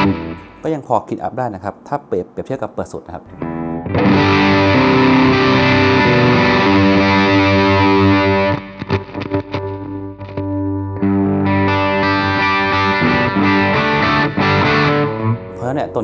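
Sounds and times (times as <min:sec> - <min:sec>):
distorted electric guitar chords: 0:00.0 - 0:00.7, 0:03.3 - 0:16.0
choppy guitar stabs: 0:00.0 - 0:01.0, 0:03.3 - 0:16.0.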